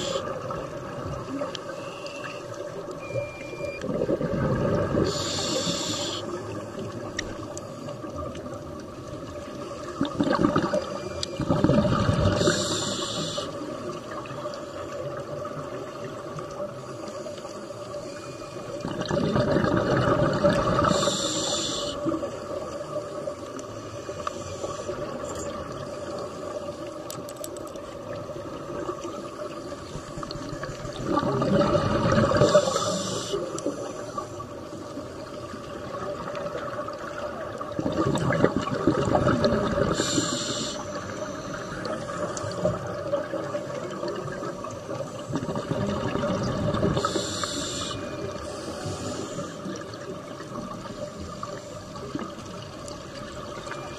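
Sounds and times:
regulator inhale hiss: 0:00.0 - 0:00.4, 0:05.0 - 0:06.6, 0:12.3 - 0:13.8, 0:20.8 - 0:23.2, 0:23.8 - 0:25.2, 0:32.4 - 0:35.4, 0:39.9 - 0:42.4, 0:47.0 - 0:49.8
diver exhaling bubbles: 0:03.8 - 0:06.0, 0:10.0 - 0:13.0, 0:18.8 - 0:21.4, 0:31.0 - 0:33.4, 0:37.7 - 0:40.7, 0:45.3 - 0:47.9.

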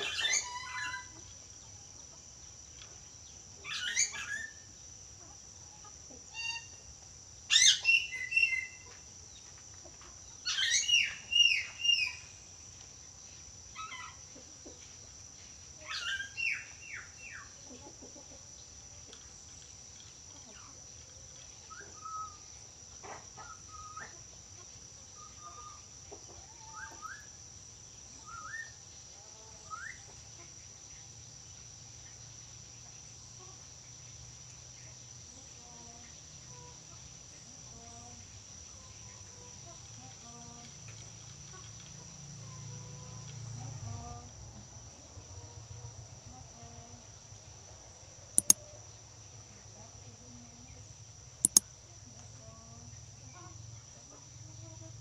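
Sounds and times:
bird chirps: 0:07.5 - 0:08.9.

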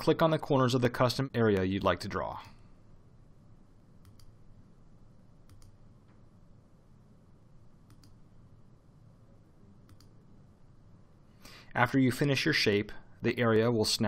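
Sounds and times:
computer mouse clicks: 0:04.0 - 0:04.4, 0:05.4 - 0:06.2, 0:07.8 - 0:08.2, 0:09.8 - 0:10.2.

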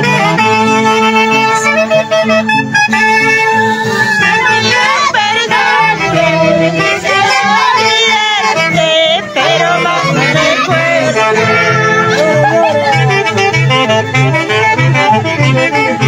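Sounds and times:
orchestral folk music: 0:00.0 - 0:16.0
person singing: 0:03.4 - 0:16.0.

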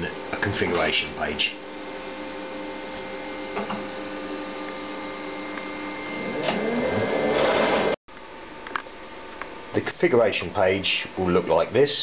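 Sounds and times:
plotter printing whir: 0:05.9 - 0:08.0.

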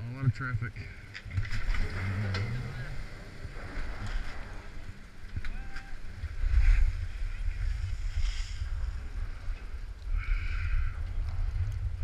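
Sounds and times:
wind buffeting microphone: 0:00.6 - 0:12.0
skis sliding on packed snow: 0:06.5 - 0:09.8.

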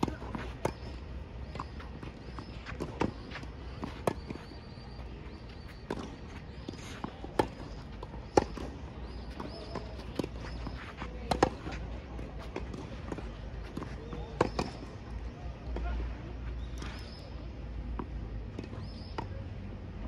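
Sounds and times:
tennis balls struck by rackets: 0:00.0 - 0:16.0
tennis balls bouncing on court: 0:00.0 - 0:19.4.

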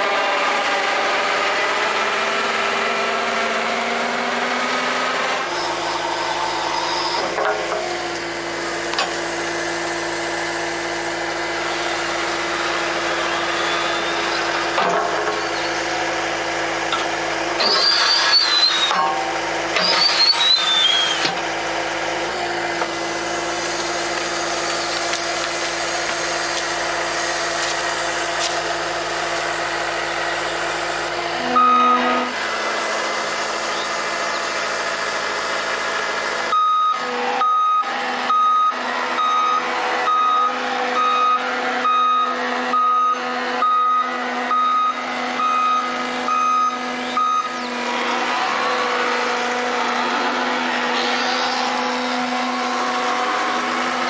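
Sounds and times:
diesel engine running: 0:00.0 - 0:54.0
high falling squeals of spade blades: 0:05.4 - 0:07.3, 0:12.8 - 0:14.8, 0:17.6 - 0:21.4.

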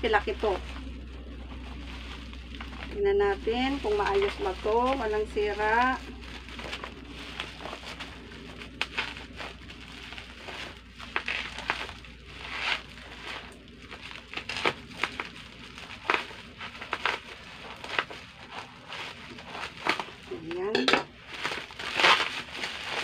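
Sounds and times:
bubble wrap crackling: 0:00.0 - 0:23.0.

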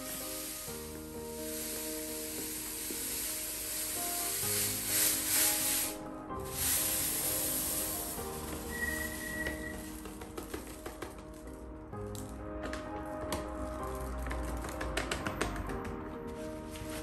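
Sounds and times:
powder pouring into glass jar: 0:00.0 - 0:10.6
soft background music: 0:00.0 - 0:17.0.

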